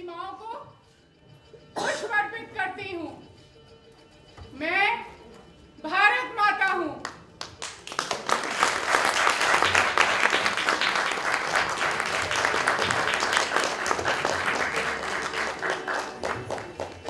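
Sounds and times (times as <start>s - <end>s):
audience applauding: 7.0s - 17.0s.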